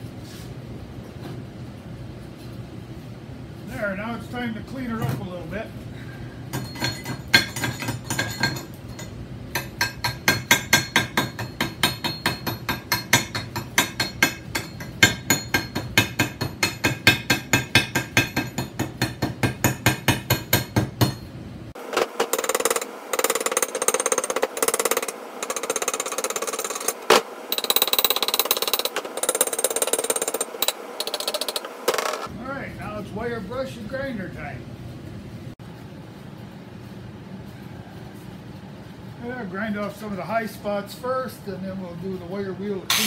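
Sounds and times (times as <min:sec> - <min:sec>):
chipping hammer striking steel: 0:09.6 - 0:21.2.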